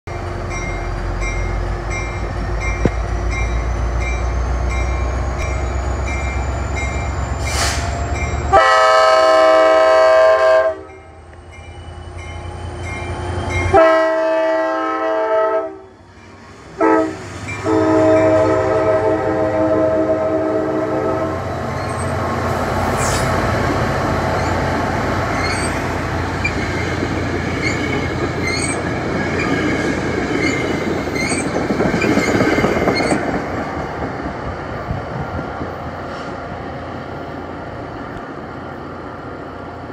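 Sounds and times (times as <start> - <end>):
diesel locomotive engine running: 0.1 - 39.9
train air horn blasts: 7.4 - 11.0, 13.7 - 16.0, 16.8 - 21.4
train wheels clacking on rails: 21.7 - 36.4.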